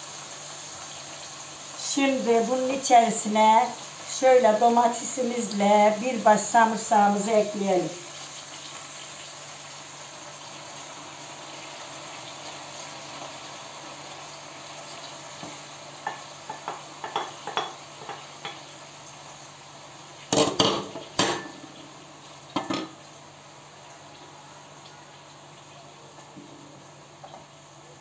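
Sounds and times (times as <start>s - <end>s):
pot sizzling with steady hiss: 0.0s - 28.0s
plate and pot lid clattering: 20.3s - 21.7s, 22.6s - 23.0s.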